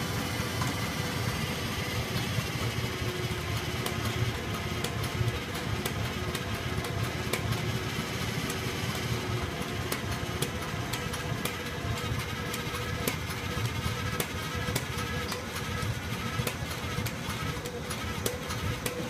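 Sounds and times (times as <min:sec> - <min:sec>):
tractor engine idling: 0:00.0 - 0:19.0.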